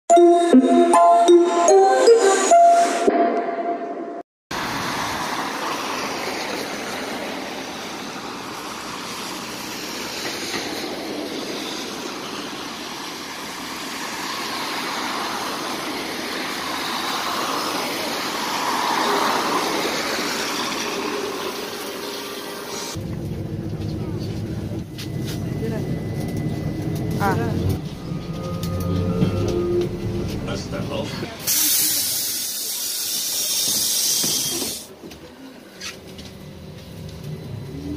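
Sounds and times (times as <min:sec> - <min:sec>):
tyres hissing on wet road: 0:04.5 - 0:23.0, 0:31.3 - 0:34.9
trolleybus approaching: 0:04.5 - 0:37.9.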